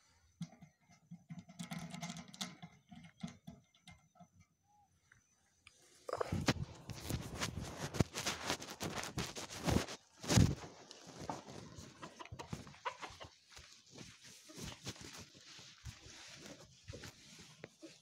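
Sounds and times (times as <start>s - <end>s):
rustling: 5.9s - 18.0s
footsteps on dirt: 6.2s - 18.0s.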